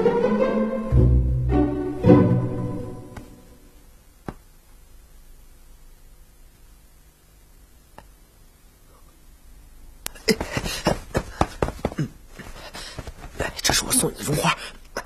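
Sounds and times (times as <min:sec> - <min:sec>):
footsteps and stamps on stone: 0:10.4 - 0:12.1.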